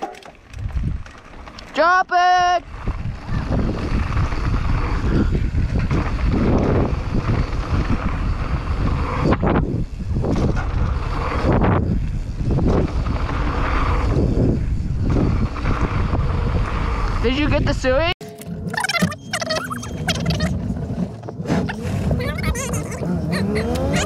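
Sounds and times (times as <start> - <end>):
tyres rumbling on dirt trail: 0.0 - 18.7, 19.6 - 24.0
wind buffeting microphone: 0.4 - 1.6, 2.2 - 18.2.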